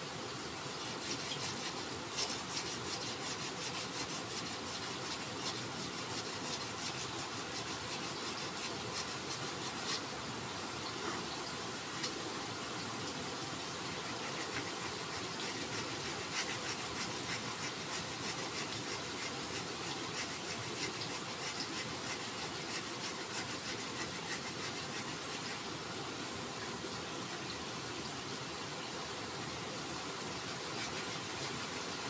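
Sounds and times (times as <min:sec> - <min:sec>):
sandpaper rubbing on wood: 0:00.8 - 0:10.1, 0:13.9 - 0:25.6, 0:30.7 - 0:32.0.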